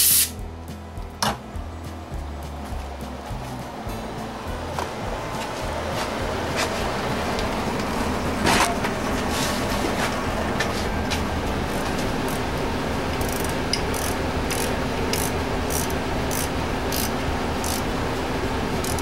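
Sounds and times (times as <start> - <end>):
steady hum: 0.0 - 19.0
wrench ratcheting: 12.2 - 12.4, 13.1 - 17.9, 18.8 - 19.0.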